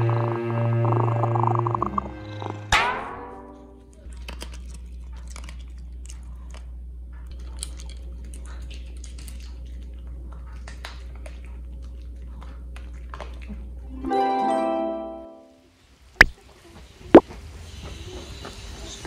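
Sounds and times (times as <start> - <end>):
low hum: 0.0 - 4.1
dog chewing and crunching food: 4.0 - 13.9.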